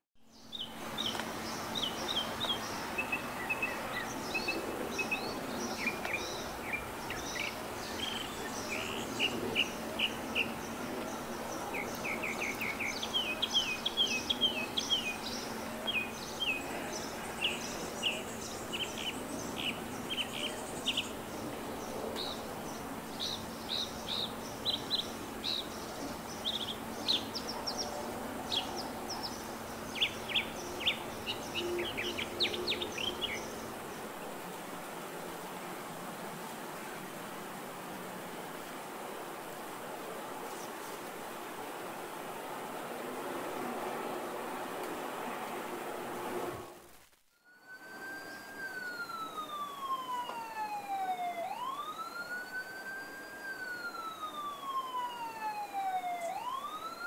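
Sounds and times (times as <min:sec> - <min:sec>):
small birds chirping: 0:00.2 - 0:34.2.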